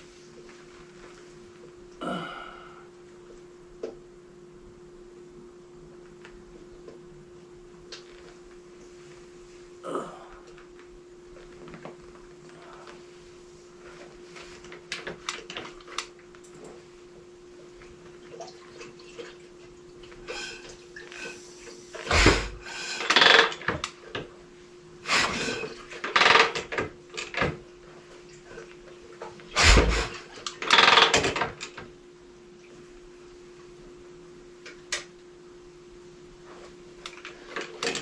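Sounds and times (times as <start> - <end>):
steady low hum: 0.0 - 30.7
engine turning over: 29.6 - 30.1.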